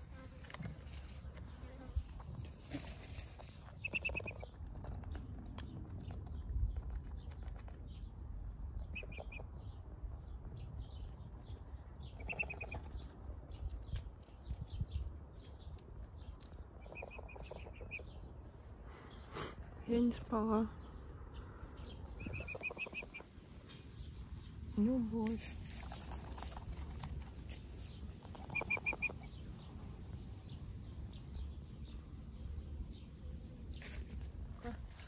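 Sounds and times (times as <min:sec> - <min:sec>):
high bird chirps: 0:22.0 - 0:23.2.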